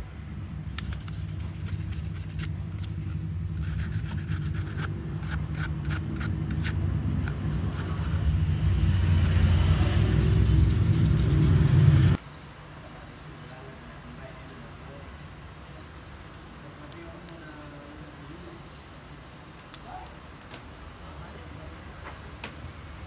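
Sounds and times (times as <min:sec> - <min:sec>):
toothbrush scrubbing metal: 0:00.6 - 0:12.2.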